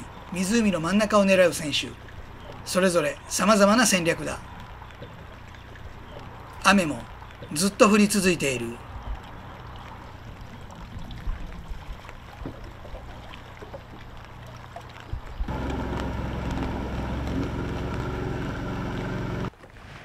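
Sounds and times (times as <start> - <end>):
outboard engine drone: 0.0 - 19.5
small ticks: 4.4 - 7.5
low hum: 8.8 - 19.5.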